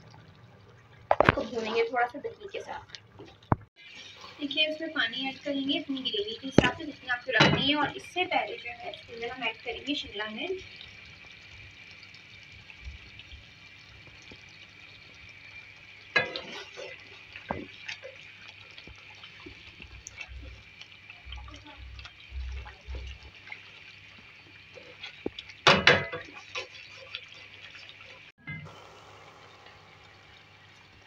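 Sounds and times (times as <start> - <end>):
curry simmering with bubbling hiss: 0.0 - 31.0
spatula stirring and scraping: 16.1 - 28.3.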